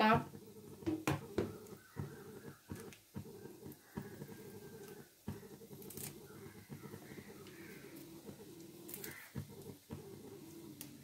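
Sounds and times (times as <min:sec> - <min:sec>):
gas stove burner rumble: 0:00.0 - 0:11.0.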